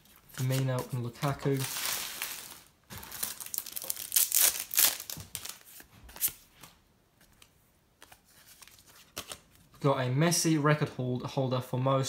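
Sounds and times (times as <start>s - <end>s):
cards being handled: 0.0s - 9.6s
wrapper tearing open: 0.4s - 6.4s.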